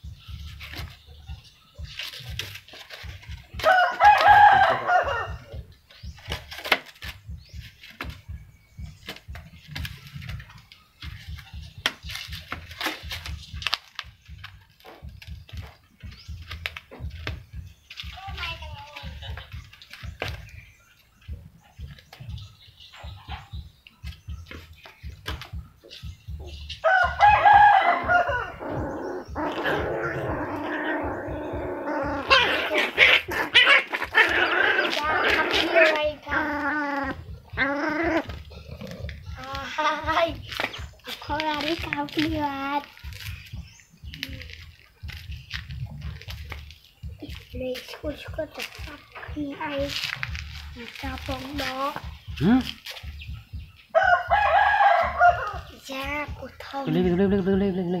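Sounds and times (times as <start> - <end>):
sharp scratchy sounds: 0.0 - 58.0
rooster crowing: 3.6 - 5.6, 26.8 - 29.0, 53.9 - 55.7.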